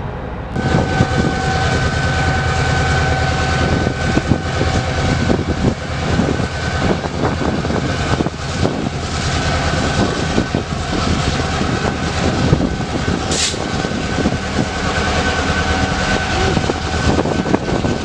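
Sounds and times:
freight train rumble and clatter: 0:00.0 - 0:18.0
brief hiss: 0:13.3 - 0:13.6.

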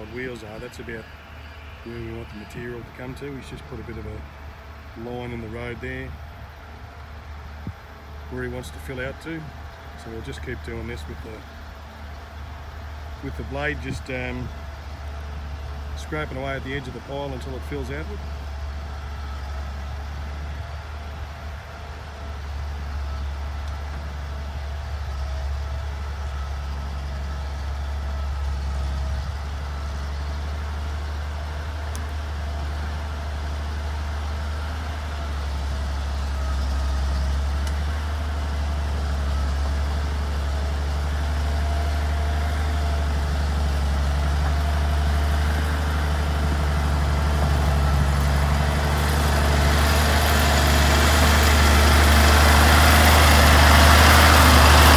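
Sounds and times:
diesel engine running: 0:00.0 - 0:54.9.

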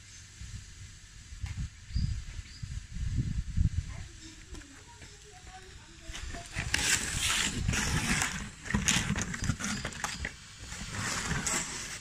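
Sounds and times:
wind rumble on microphone: 0:00.0 - 0:08.6.

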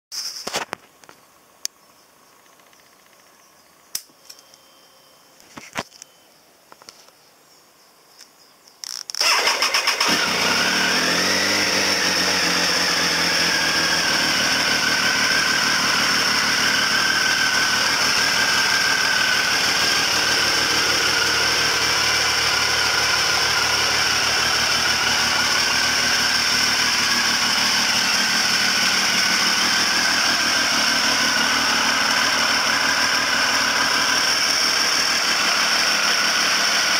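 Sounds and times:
motorcycle engine cranking: 0:08.8 - 0:36.9
motorcycle engine idling: 0:09.2 - 0:36.9.

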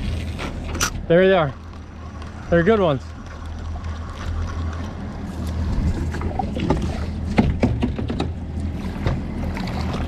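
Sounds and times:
outboard motors idling: 0:00.0 - 0:10.0
sharp knocks: 0:06.7 - 0:08.4.

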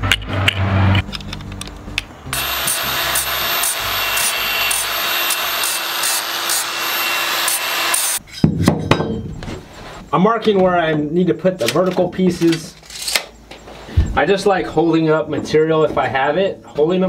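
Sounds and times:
angle grinder grinding metal: 0:02.3 - 0:08.2.

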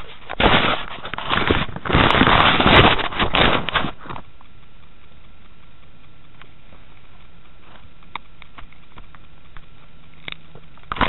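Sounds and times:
microphone rubbing and bumping: 0:00.0 - 0:04.3.

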